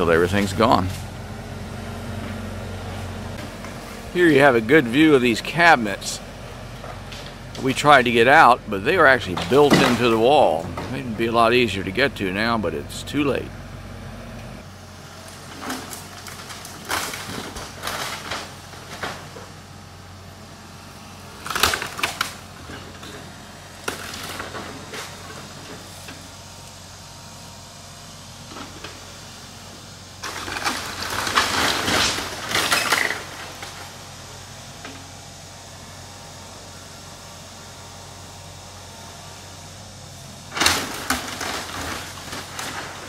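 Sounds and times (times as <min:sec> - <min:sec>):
heavy equipment low hum: 0:00.0 - 0:43.0
breaking timber crashes: 0:09.0 - 0:11.3, 0:15.4 - 0:19.5, 0:21.4 - 0:23.1, 0:30.2 - 0:34.0, 0:40.5 - 0:43.0
falling debris: 0:09.1 - 0:11.0, 0:15.5 - 0:19.5, 0:30.2 - 0:33.9, 0:40.5 - 0:43.0.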